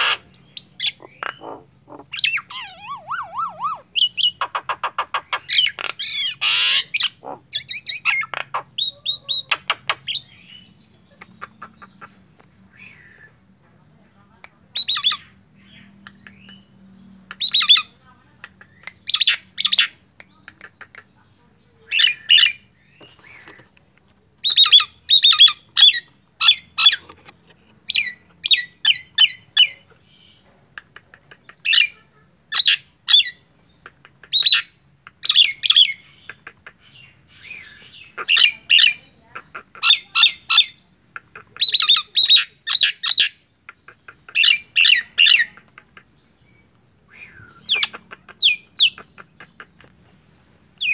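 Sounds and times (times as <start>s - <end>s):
myna harsh chattering calls: 0.0s - 12.2s, 30.8s - 46.3s, 47.6s - 50.0s.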